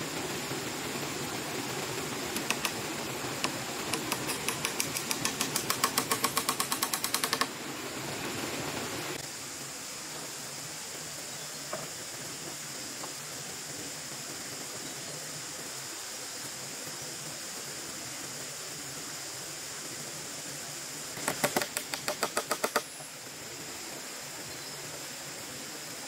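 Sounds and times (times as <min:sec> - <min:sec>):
tool tapping on bamboo: 0:02.3 - 0:02.8, 0:03.4 - 0:07.5, 0:21.2 - 0:22.9.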